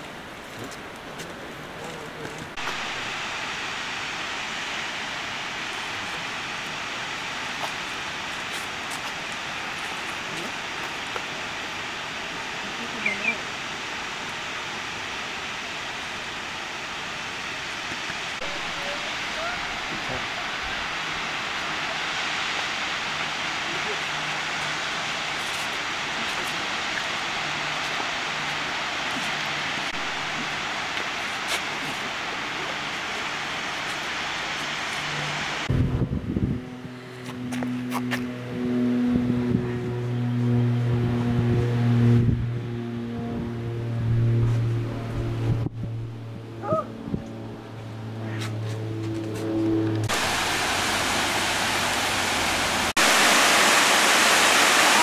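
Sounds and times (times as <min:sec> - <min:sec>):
distant waterfall rushing: 0:00.0 - 0:35.8, 0:49.7 - 0:55.0.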